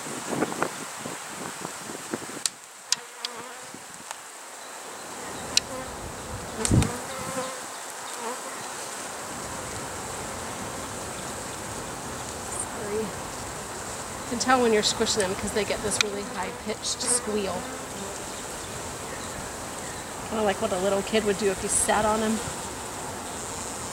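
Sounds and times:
bees buzzing: 0:02.8 - 0:03.8, 0:05.0 - 0:23.9.

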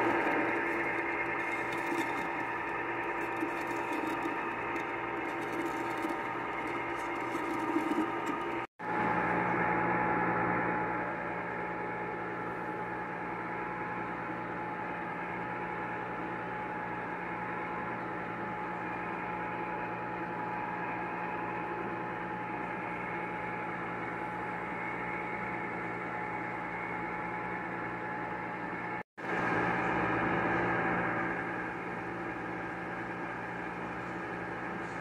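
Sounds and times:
ice cream maker motor humming: 0:00.0 - 0:09.6.

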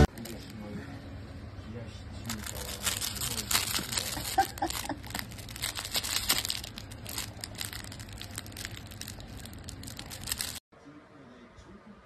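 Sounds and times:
plush toy crinkling: 0:00.1 - 0:00.6, 0:02.2 - 0:10.6.

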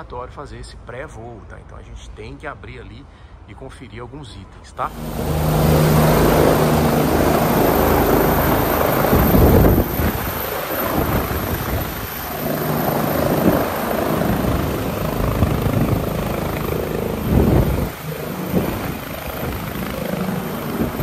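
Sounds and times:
helicopter turbine and rotor noise: 0:04.8 - 0:21.0
low hum: 0:04.8 - 0:21.0.

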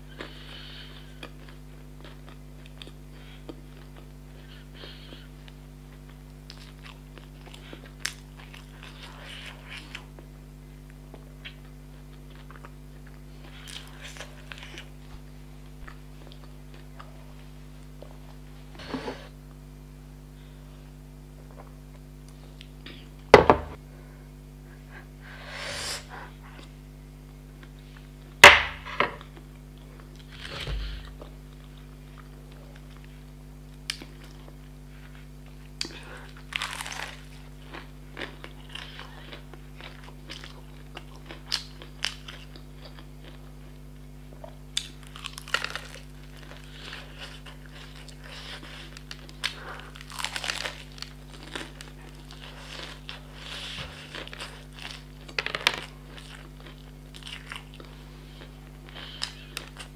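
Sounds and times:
steady low hum: 0:00.0 - 0:59.9
chewing: 0:29.2 - 0:59.9
crunching fried chicken breading: 0:35.8 - 0:43.4, 0:44.7 - 0:58.0.

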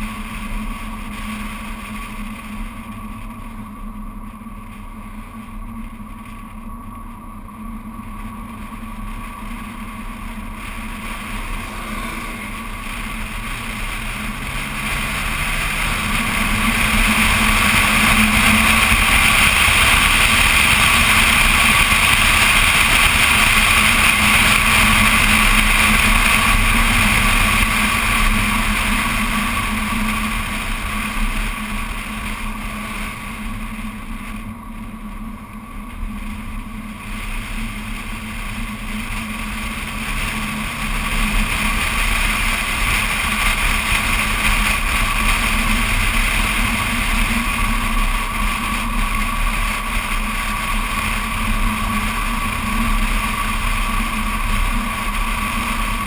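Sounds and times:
car engine: 0:00.0 - 0:56.0
road noise: 0:00.0 - 0:56.0
wind rushing: 0:09.2 - 0:22.0.

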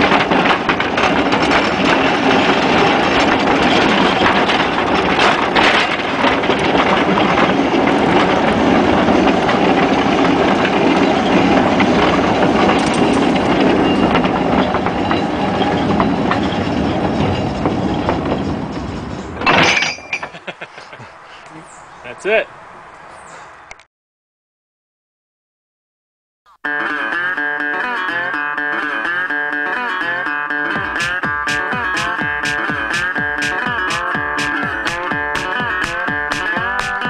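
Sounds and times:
rattling and clacking: 0:00.0 - 0:20.5, 0:30.7 - 0:37.0
steel wheels rumbling on rails: 0:00.0 - 0:21.4, 0:30.7 - 0:37.0.

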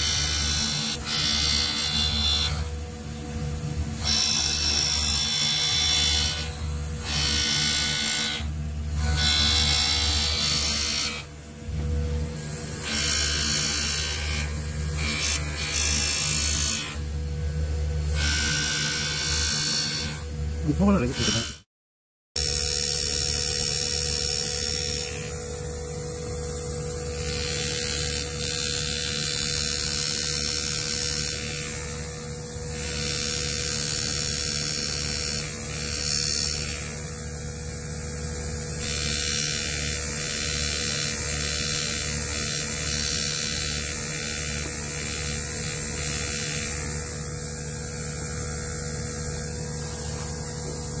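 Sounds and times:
pneumatic engraver buzzing: 0:00.0 - 0:17.2, 0:17.9 - 0:21.6, 0:22.4 - 0:51.0.

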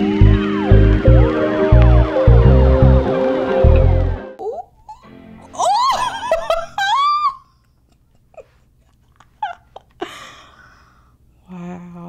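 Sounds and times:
woman squealing and giggling: 0:04.4 - 0:08.6, 0:09.2 - 0:10.0
woman breathing: 0:10.0 - 0:11.4.

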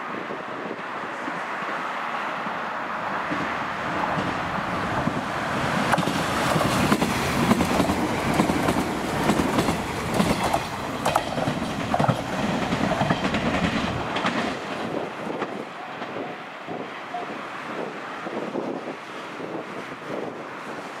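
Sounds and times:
train wheels rumbling on rail: 0:00.0 - 0:21.0
wheels clacking over rail joints: 0:03.3 - 0:16.9.

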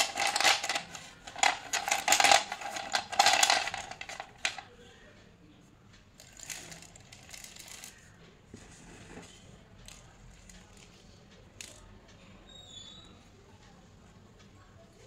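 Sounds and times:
slate pencils cracking and crunching: 0:00.0 - 0:04.7, 0:06.2 - 0:08.1.

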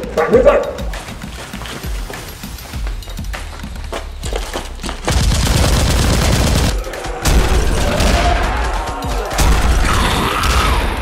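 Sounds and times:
rapid automatic gunfire: 0:05.1 - 0:08.3.

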